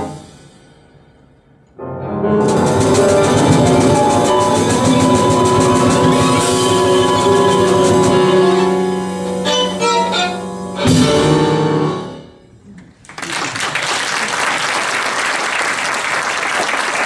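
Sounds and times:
violin piano and drums playing: 1.8 - 12.4
audience applause: 13.0 - 17.0.

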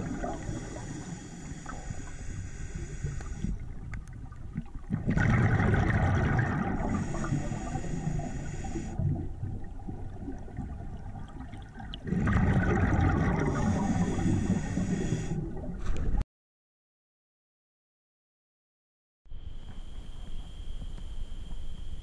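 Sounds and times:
underwater bubbles gurgling: 0.0 - 16.2.

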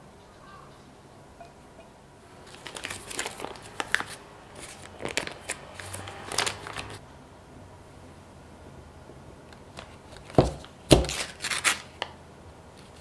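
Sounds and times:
foil paper wrapper crinkling: 2.4 - 7.0, 10.1 - 12.2.

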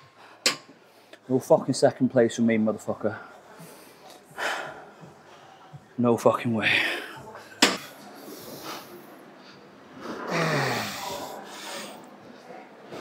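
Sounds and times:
man breathing hard: 3.5 - 5.8.

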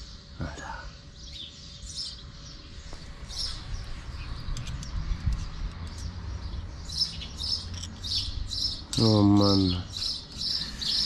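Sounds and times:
small birds chirping: 0.0 - 11.0
steady low rumble: 2.7 - 9.0.

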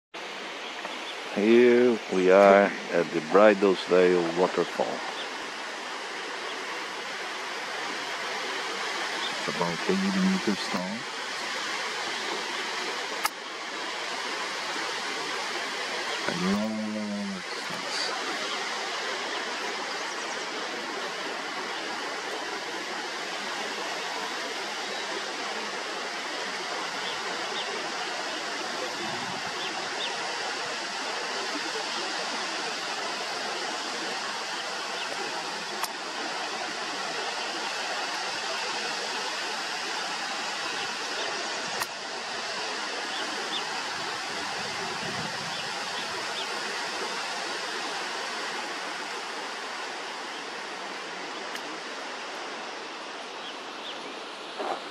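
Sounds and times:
waterfall rushing and splashing: 0.2 - 54.9.

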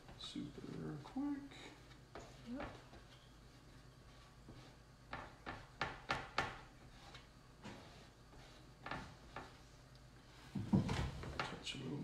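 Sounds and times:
squeegee scraping on screen: 6.8 - 9.8.

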